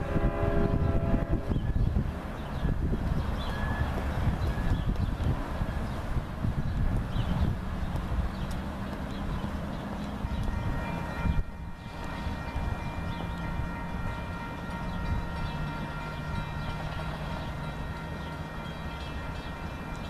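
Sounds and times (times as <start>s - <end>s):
diesel locomotive drone: 0.0s - 20.0s
railroad crossing bell ringing: 9.1s - 20.0s.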